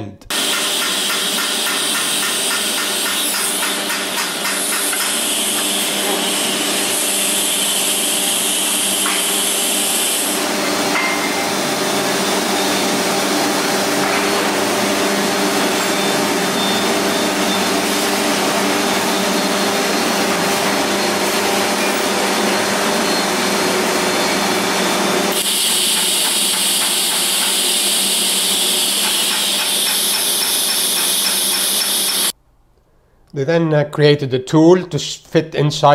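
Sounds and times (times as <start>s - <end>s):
die grinder whine: 0.3s - 32.4s
high hiss: 25.4s - 32.3s.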